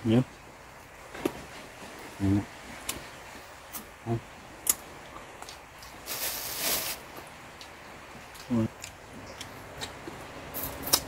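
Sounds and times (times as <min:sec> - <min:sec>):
short burst of hiss: 0:06.0 - 0:07.0
small sharp clicks of eating: 0:10.6 - 0:11.0.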